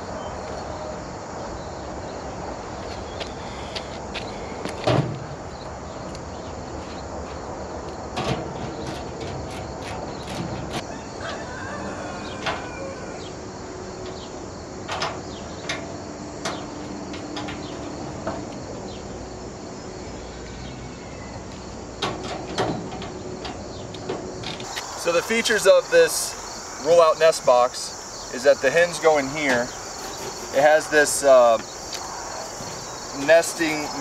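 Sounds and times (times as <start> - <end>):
steady background hiss: 12.1 - 34.0
sheet-metal parts clicking and knocking: 22.0 - 24.7.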